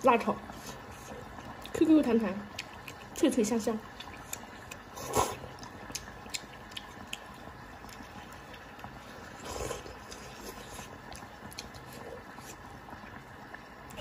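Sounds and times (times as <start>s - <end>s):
wet chewing clicks: 1.4s - 13.2s
noodle slurping: 3.9s - 13.2s.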